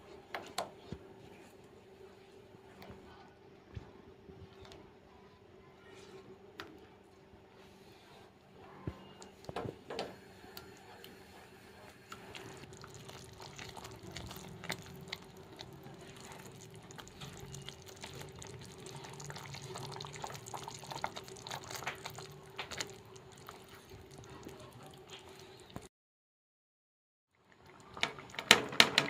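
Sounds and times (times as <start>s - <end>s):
spatula stirring: 10.6s - 25.8s
gravy bubbling and popping in pan: 12.2s - 25.9s, 27.4s - 29.0s.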